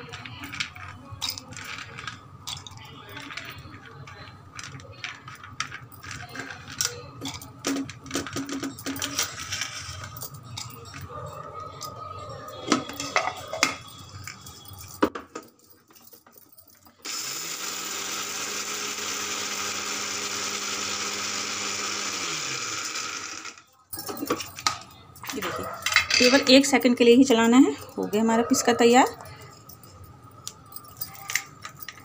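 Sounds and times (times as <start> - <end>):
nuts clattering in metal jar: 0.0 - 15.2, 23.6 - 29.9, 30.5 - 32.0
grinder motor running: 17.1 - 23.6.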